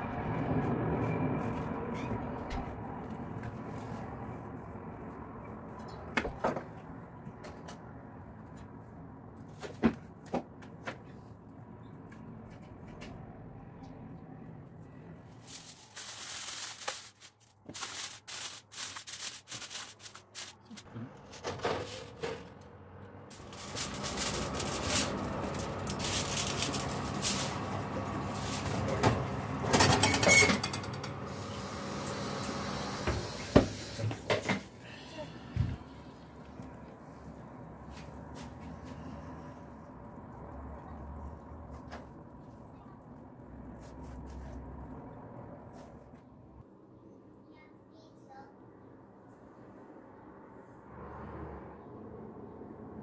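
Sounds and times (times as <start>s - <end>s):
oven fan hum: 19.9s - 43.8s.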